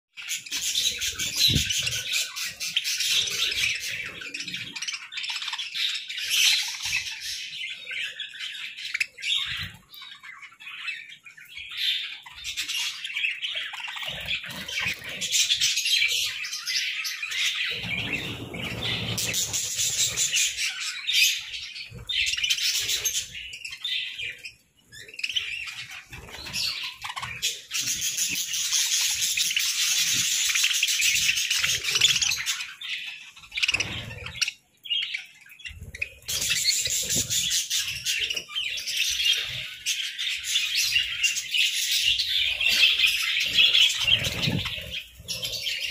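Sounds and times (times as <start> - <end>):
budgerigars chattering and chirping: 0.2 - 45.9.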